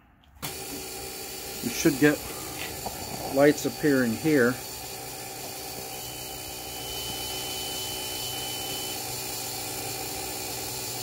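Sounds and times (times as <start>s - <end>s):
steady mechanical hum: 0.2s - 11.0s
high steady buzzer tone: 3.3s - 11.0s.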